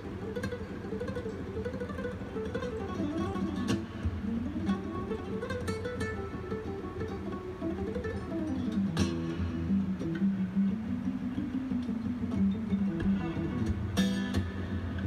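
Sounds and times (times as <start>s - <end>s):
acoustic guitar fast picked runs: 0.0s - 15.0s.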